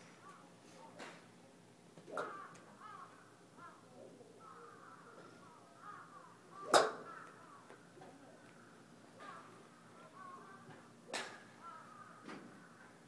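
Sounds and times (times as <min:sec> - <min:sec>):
bird calls: 0:04.4 - 0:07.7
golf club striking a ball: 0:06.7 - 0:07.0.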